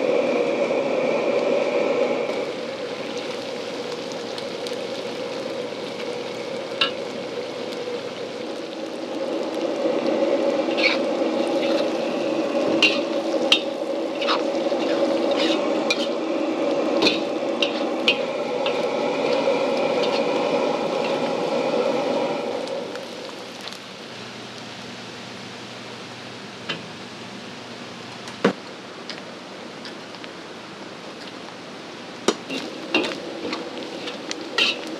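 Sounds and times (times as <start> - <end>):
fish sizzling in oil: 0.0 - 28.2, 31.2 - 34.9
metal spatula scraping wok: 10.6 - 16.3, 16.9 - 21.5, 32.5 - 34.9.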